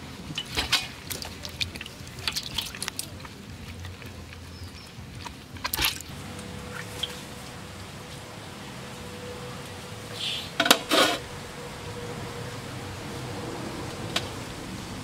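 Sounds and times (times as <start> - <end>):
hands washing in basin of water: 0.3 - 6.1.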